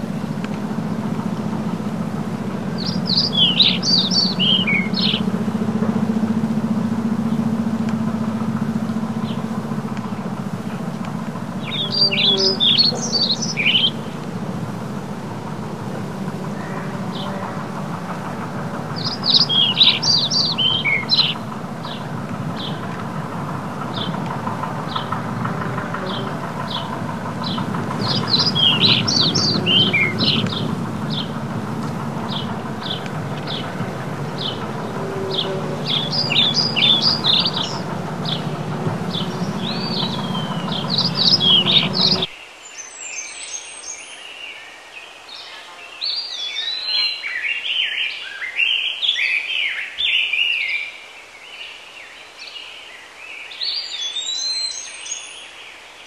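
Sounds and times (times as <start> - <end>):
low rumble: 0.0 - 42.3
steady low hum: 0.0 - 42.3
bird chirping: 0.0 - 51.0, 53.5 - 56.0
songbird singing: 0.0 - 56.0
varied birdsong: 0.0 - 56.0.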